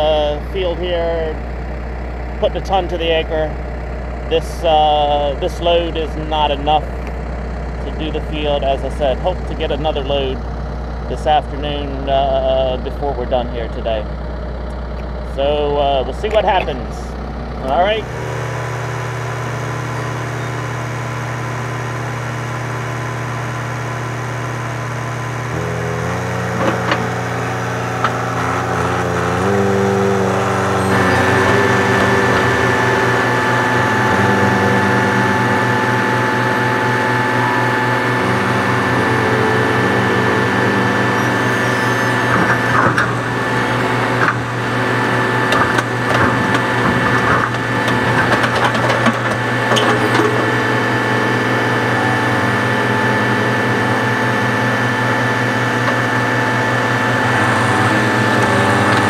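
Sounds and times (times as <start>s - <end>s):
steady high whine: 0.0s - 59.0s
tractor diesel engine revving: 0.0s - 59.0s.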